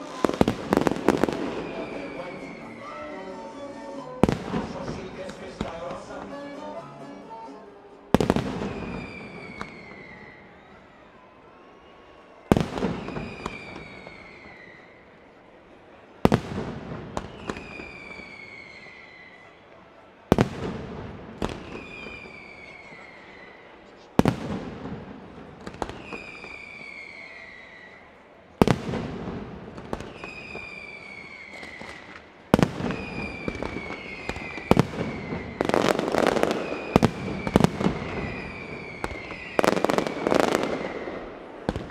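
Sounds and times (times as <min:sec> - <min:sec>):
falling whistle: 0:00.0 - 0:04.8, 0:08.5 - 0:15.1, 0:17.2 - 0:19.8, 0:21.6 - 0:23.8, 0:25.9 - 0:28.2, 0:30.0 - 0:32.1, 0:32.9 - 0:41.3
firecracker bangs: 0:20.3 - 0:23.0, 0:28.6 - 0:41.9.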